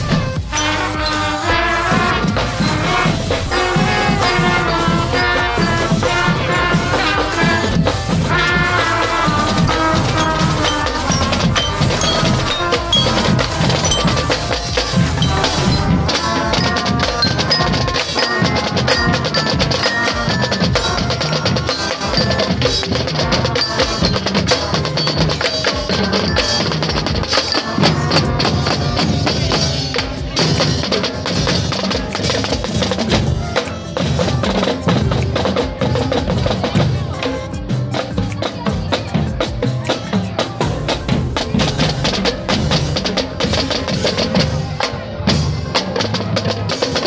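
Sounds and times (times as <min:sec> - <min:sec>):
percussion-led music: 0:00.0 - 0:47.0
bell-like struck metal tones: 0:07.8 - 0:29.1.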